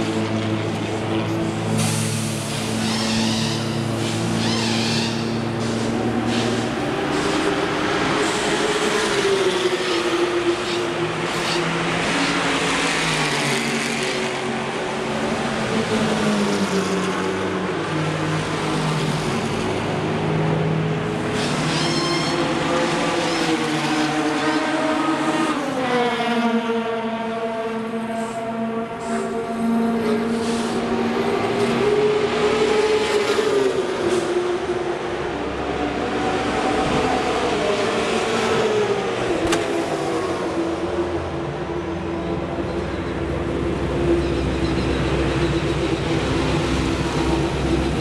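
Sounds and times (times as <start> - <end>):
race car engines passing: 0.0 - 21.7.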